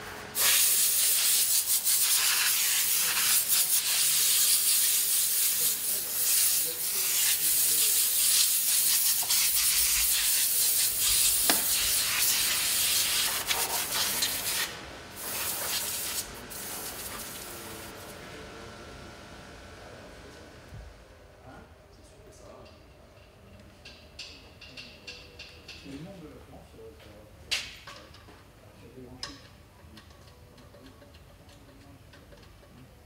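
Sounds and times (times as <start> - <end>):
loud steady hiss: 0.0 - 18.2.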